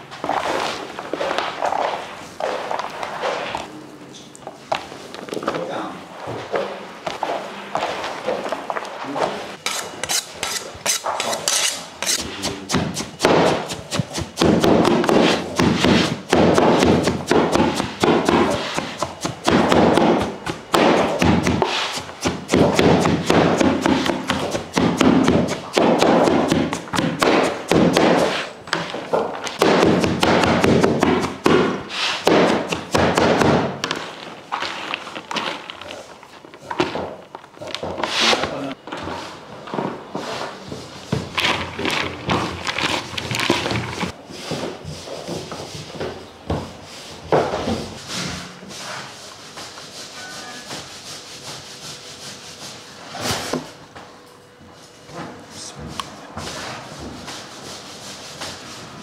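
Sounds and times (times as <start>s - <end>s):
knife chopping cabbage: 9.7s - 28.5s, 29.5s - 33.9s.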